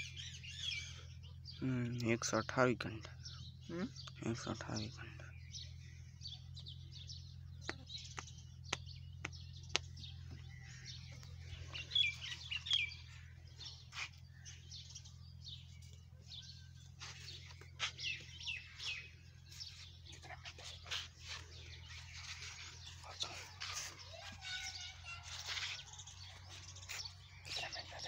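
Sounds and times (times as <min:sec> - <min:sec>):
small birds chirping: 0:00.0 - 0:28.0
steady low hum: 0:03.0 - 0:24.1.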